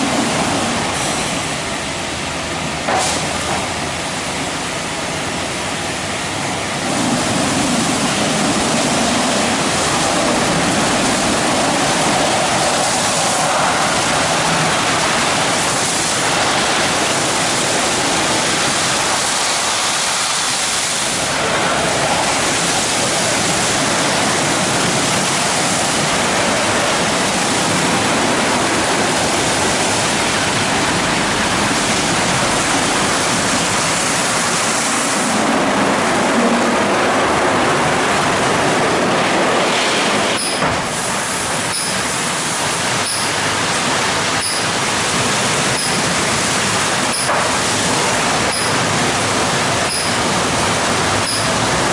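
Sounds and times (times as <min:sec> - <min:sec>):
water spraying: 0:00.0 - 0:04.4, 0:06.4 - 0:51.9.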